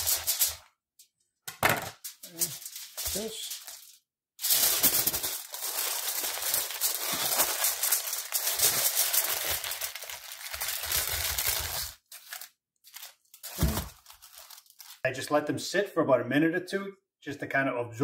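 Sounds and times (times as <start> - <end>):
aluminum foil crinkling: 0.0 - 0.7, 2.0 - 15.0.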